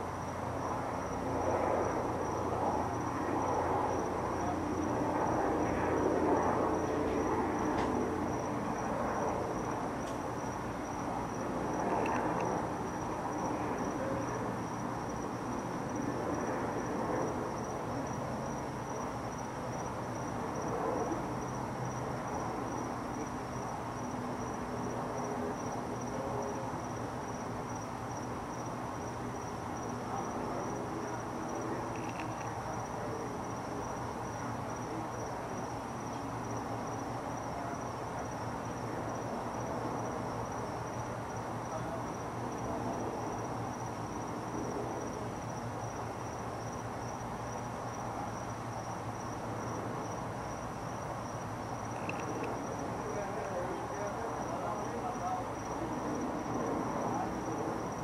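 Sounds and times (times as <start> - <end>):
high-pitched insect chirping: 31.5 - 44.2, 44.9 - 52.8.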